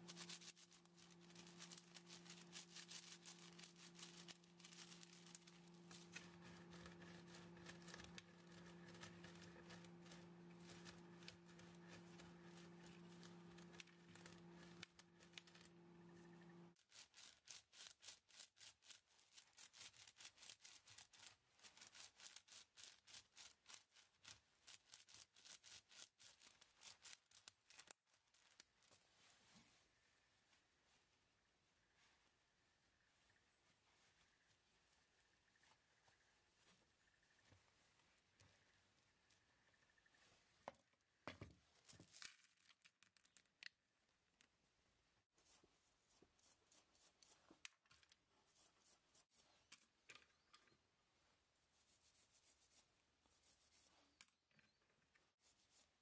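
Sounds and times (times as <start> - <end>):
cloth pad scrubbing paper: 0.0 - 15.7
low steady hum: 0.0 - 16.8.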